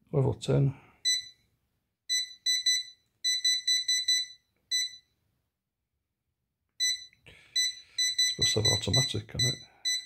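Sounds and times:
short high-pitched beeps: 0:06.8 - 0:10.0.

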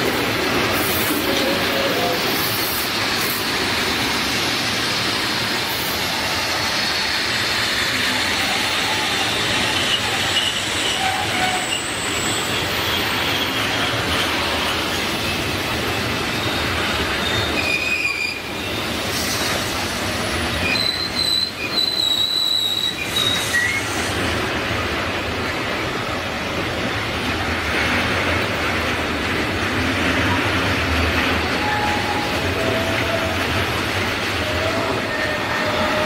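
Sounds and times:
freight train rumbling past: 0:00.0 - 0:36.0
high-pitched wheel squeals: 0:08.2 - 0:13.6, 0:16.4 - 0:18.8, 0:20.6 - 0:24.1.

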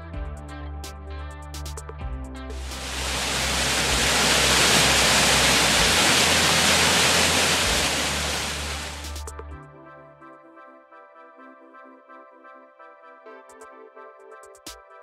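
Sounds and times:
waterfall rushing: 0:02.6 - 0:09.2.

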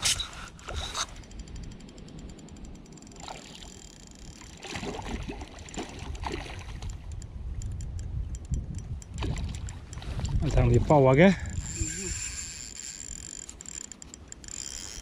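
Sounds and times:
water sloshing and splashing: 0:03.1 - 0:07.1.

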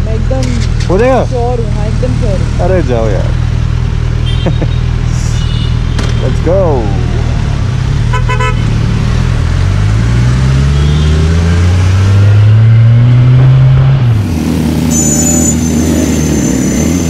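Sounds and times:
vehicle horn toot: 0:04.2 - 0:06.4, 0:08.1 - 0:08.7, 0:10.7 - 0:11.3, 0:14.8 - 0:17.0
motorcycle engine accelerating: 0:06.2 - 0:17.0.

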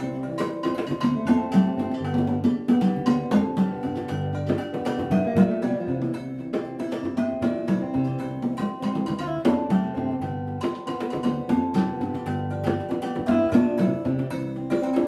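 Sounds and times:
guitars playing: 0:00.0 - 0:15.0
wooden xylophone struck with mallets: 0:00.0 - 0:15.0.

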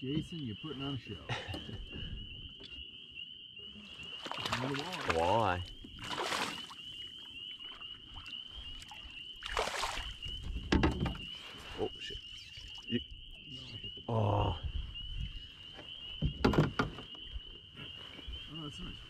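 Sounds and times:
fish splashing: 0:04.0 - 0:05.3, 0:06.0 - 0:06.8, 0:08.9 - 0:10.2.

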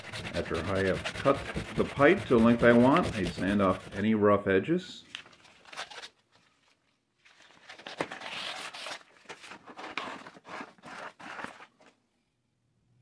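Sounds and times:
sandpaper rubbing plastic pipe: 0:00.0 - 0:04.2.

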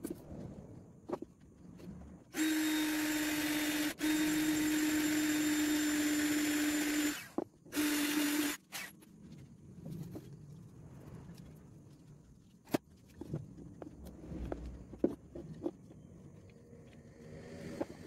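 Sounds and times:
electric motor humming: 0:02.3 - 0:08.9.

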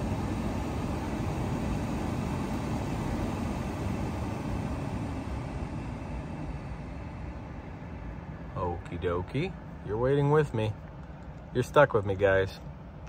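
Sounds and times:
blower fan rushing air: 0:00.0 - 0:13.0.

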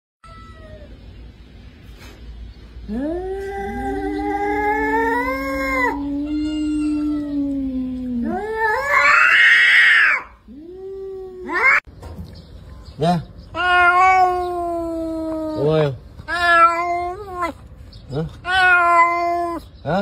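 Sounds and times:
cats yowling: 0:00.2 - 0:01.0, 0:02.9 - 0:11.9, 0:13.5 - 0:17.6, 0:18.3 - 0:19.7.

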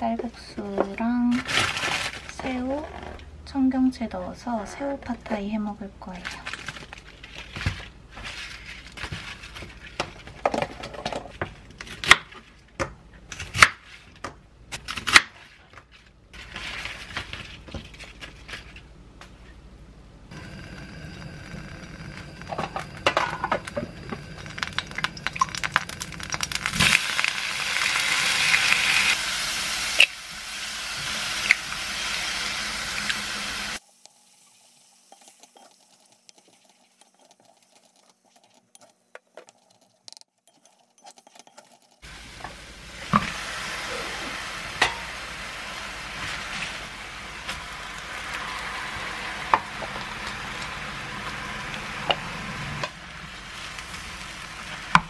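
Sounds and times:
food sizzling in hot oil: 0:20.3 - 0:38.4, 0:42.0 - 0:55.0.

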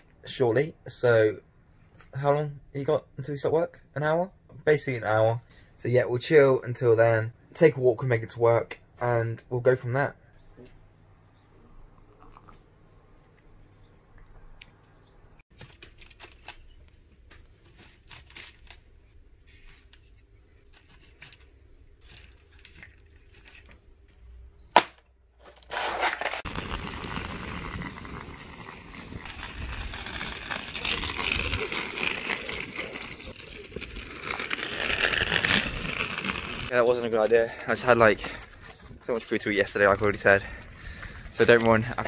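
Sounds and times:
pushchair wheels rattling on tarmac: 0:26.4 - 0:36.7.

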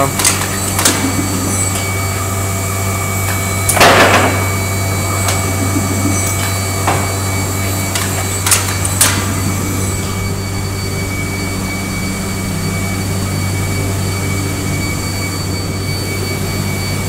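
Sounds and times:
factory machinery hum: 0:00.0 - 0:17.0.

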